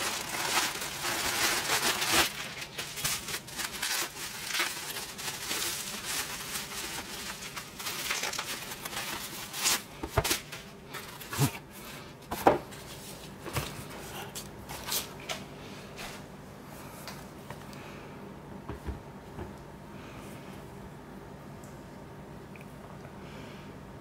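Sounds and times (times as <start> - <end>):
bubble wrap crinkling: 0.0 - 11.7.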